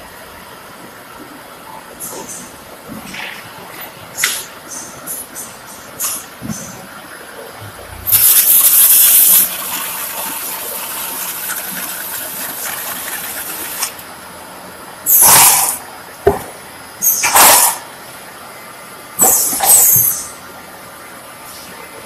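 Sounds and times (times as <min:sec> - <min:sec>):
machinery hissing air bursts: 0:08.0 - 0:13.9, 0:15.1 - 0:15.9.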